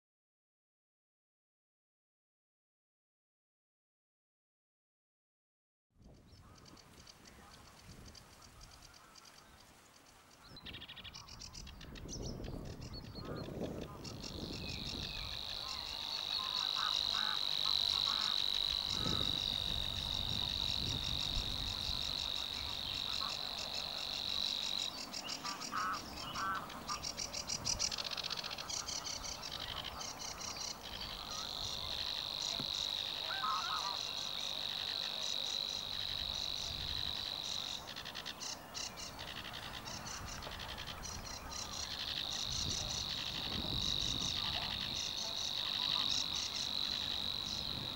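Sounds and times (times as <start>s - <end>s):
bird reeling buzzing trill: 14.0s - 47.9s.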